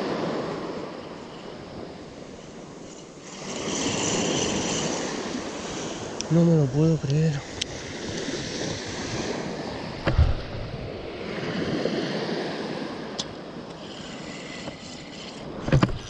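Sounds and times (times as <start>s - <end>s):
surf waves washing onto beach: 0.0s - 16.0s
thump: 10.0s - 10.6s.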